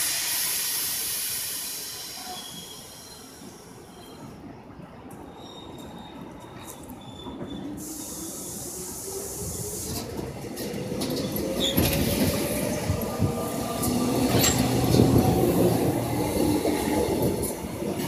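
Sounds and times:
train wheels clicking: 9.2 - 18.0.

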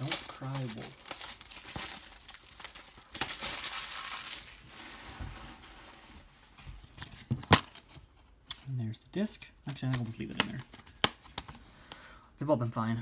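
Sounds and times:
plastic wrap crinkling: 0.0 - 7.8.

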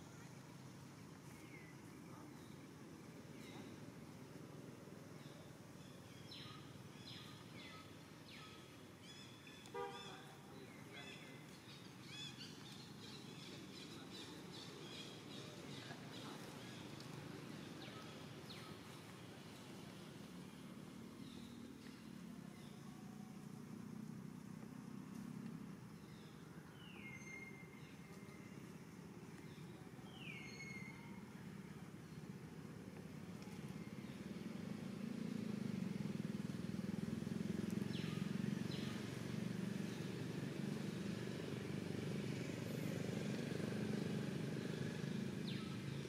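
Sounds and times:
low steady background hiss: 0.0 - 46.0
small birds chirping: 5.0 - 23.5, 37.5 - 46.0.

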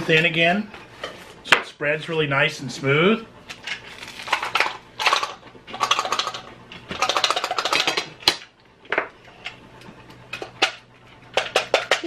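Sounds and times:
toast crunching: 3.6 - 4.8.

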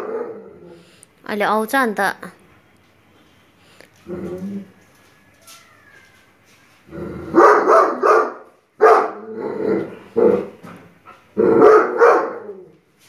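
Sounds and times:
dog barking: 0.0 - 0.4, 7.3 - 9.2, 11.6 - 12.6.

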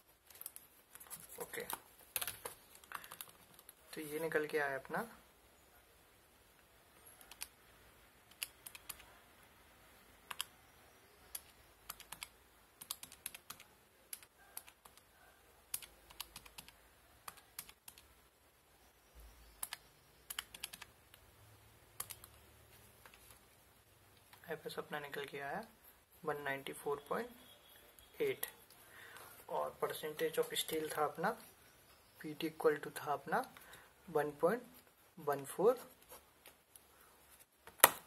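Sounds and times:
calculator keys clicking: 15.7 - 18.0, 19.6 - 20.9.

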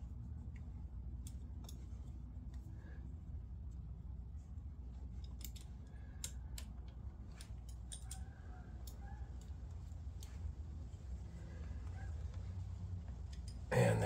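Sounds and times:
low steady hum: 0.0 - 14.0
metallic clicks of hand tools: 5.2 - 9.6.

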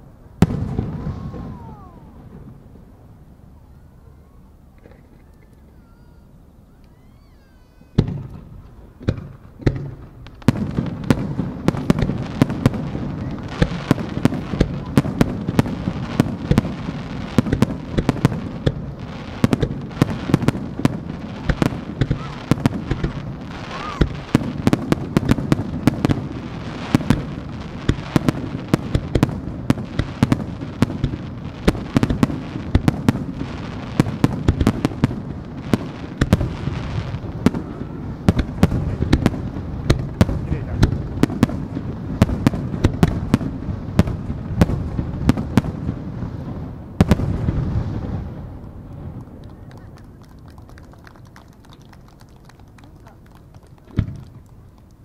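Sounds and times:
fireworks bangs: 0.0 - 6.3, 6.9 - 55.0.

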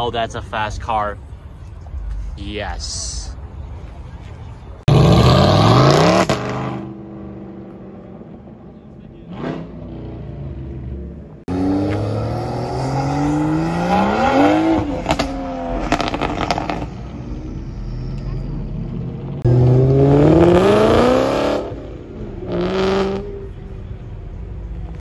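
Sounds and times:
sports car engine accelerating: 4.9 - 17.6, 19.0 - 23.7.

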